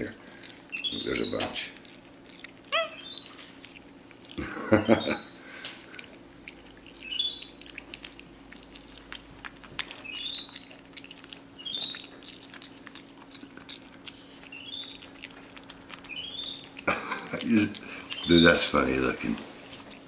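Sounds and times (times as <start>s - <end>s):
monkey chewing with lip-smacking: 0.0s - 4.6s, 5.2s - 20.0s
monkey high squeaks: 0.7s - 1.5s, 2.7s - 3.5s, 7.0s - 7.6s, 10.0s - 10.8s, 11.6s - 12.1s, 14.5s - 15.0s, 16.1s - 16.7s.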